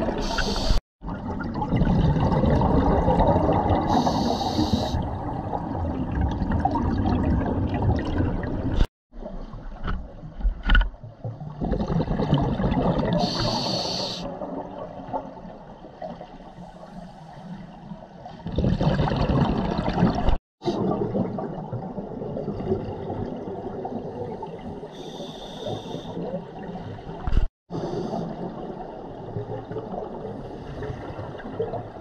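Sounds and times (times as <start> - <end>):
bubbles rumbling and gurgling: 0.0 - 25.0, 25.7 - 32.0
regulator hissing underwater: 0.2 - 0.8, 3.9 - 5.0, 13.2 - 14.3, 25.0 - 26.1.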